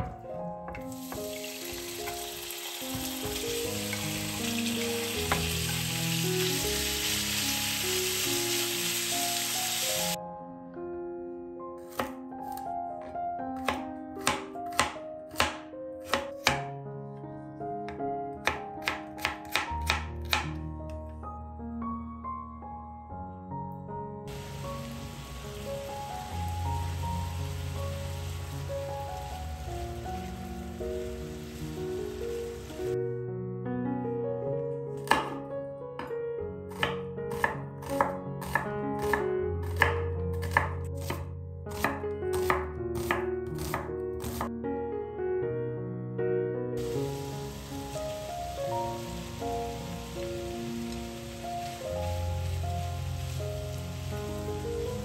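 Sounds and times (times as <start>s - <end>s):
soft piano music: 0.0s - 55.0s
knife chopping on cutting board: 11.9s - 16.7s, 18.4s - 20.5s, 35.0s - 35.4s, 36.7s - 44.5s.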